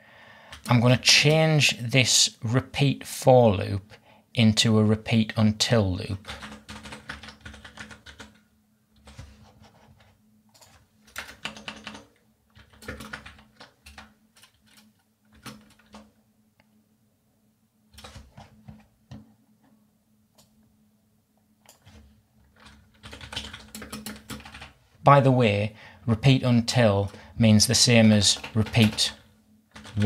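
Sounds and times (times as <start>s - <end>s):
computer keyboard typing: 0.5s - 1.4s, 6.2s - 8.4s, 9.0s - 16.1s, 17.9s - 18.9s, 21.6s - 24.8s, 28.0s - 30.0s.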